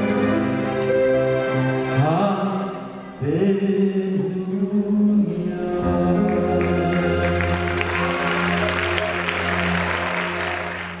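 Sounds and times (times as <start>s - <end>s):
live band holding a chord: 5.0s - 11.0s
audience applause: 6.3s - 11.0s.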